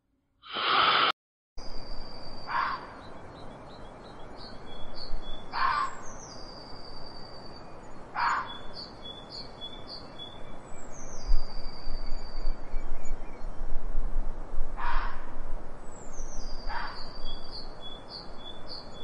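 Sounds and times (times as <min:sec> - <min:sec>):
songbird chirping: 0:01.7 - 0:13.6, 0:15.9 - 0:19.0
harsh bird calls: 0:05.4 - 0:06.3, 0:08.0 - 0:10.4, 0:16.6 - 0:19.0.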